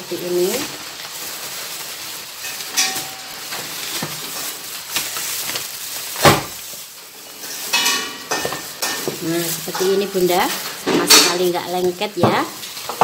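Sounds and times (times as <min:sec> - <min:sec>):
stiff paper rustling: 0:00.2 - 0:12.9.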